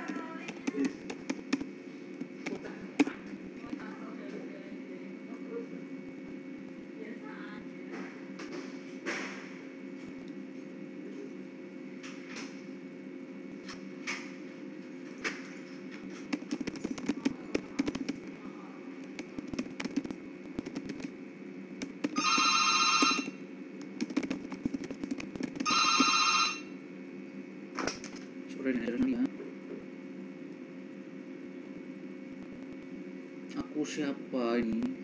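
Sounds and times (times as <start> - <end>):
low room hum: 0.0 - 35.0
electronic telephone ringing: 22.2 - 23.4, 25.6 - 26.8.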